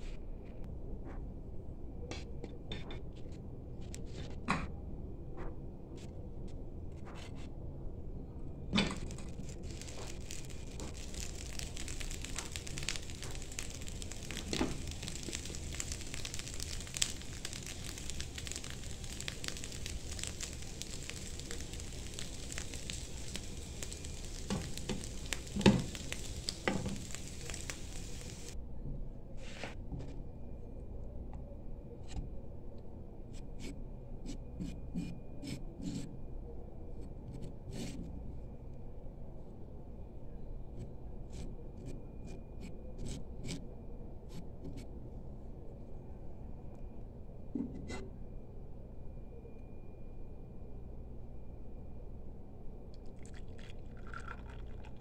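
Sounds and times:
starch hissing and crackling in pan: 0:08.8 - 0:28.6, 0:37.4 - 0:38.0, 0:40.8 - 0:43.6, 0:53.1 - 0:55.0.

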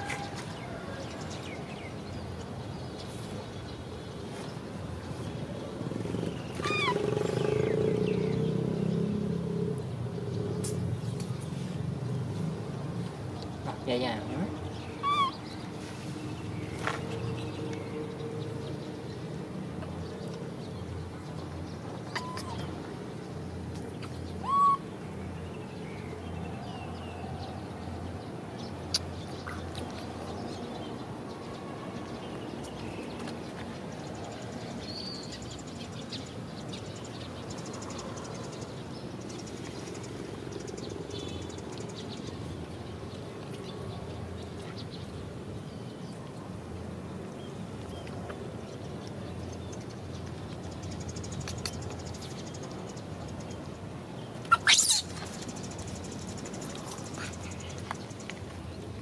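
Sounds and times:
vehicle engine: 0:05.7 - 0:13.0
baby monkey cooing: 0:06.6 - 0:07.3, 0:15.0 - 0:15.4, 0:22.1 - 0:22.7, 0:24.0 - 0:24.8, 0:54.5 - 0:55.3.

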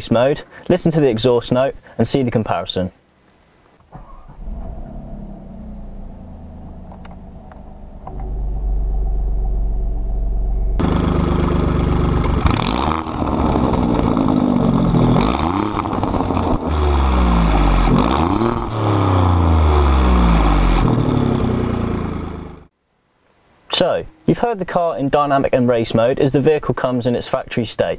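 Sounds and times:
car engine idling and revving: 0:04.0 - 0:22.7.

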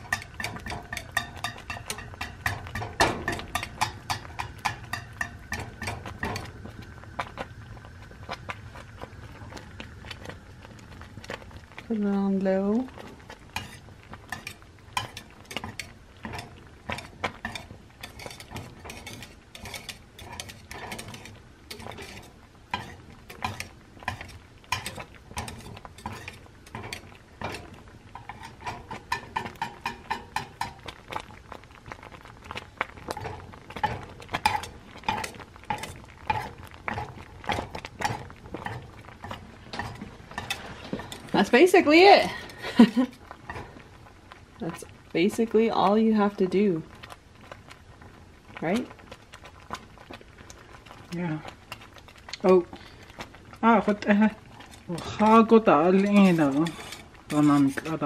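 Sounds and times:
wire whisk scraping a metal pan: 0:00.0 - 0:06.6, 0:13.5 - 0:30.9, 0:33.1 - 0:43.6, 0:53.9 - 0:58.0.

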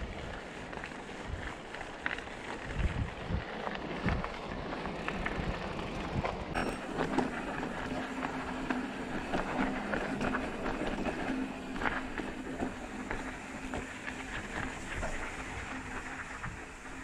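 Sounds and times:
bike tyres rolling over rough trail: 0:00.0 - 0:17.0
wind on microphone: 0:02.4 - 0:17.0
faint steady hum: 0:06.2 - 0:17.0.

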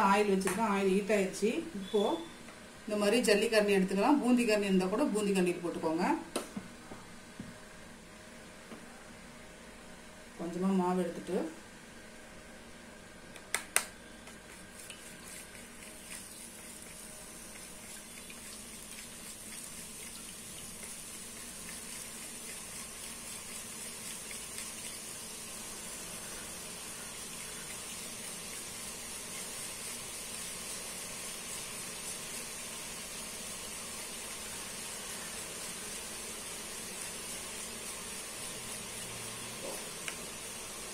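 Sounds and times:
batter sizzling in hot oil: 0:14.3 - 0:40.9.

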